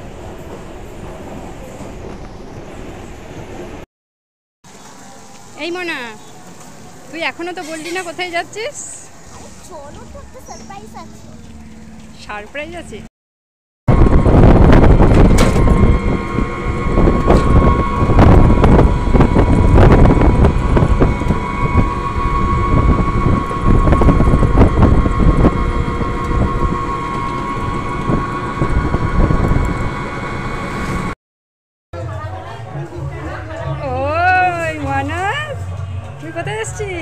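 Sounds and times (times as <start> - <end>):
vehicle engine and road rumble: 4.7 - 13.1, 13.9 - 31.2
wind buffeting microphone: 13.9 - 31.1
steady whine: 13.9 - 31.2.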